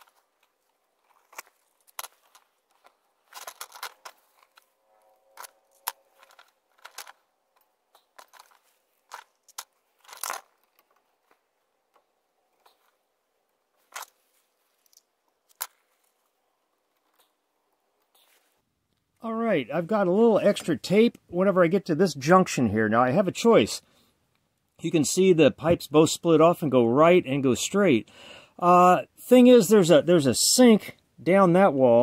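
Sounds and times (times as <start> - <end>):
tape crinkling: 0.0 - 11.5.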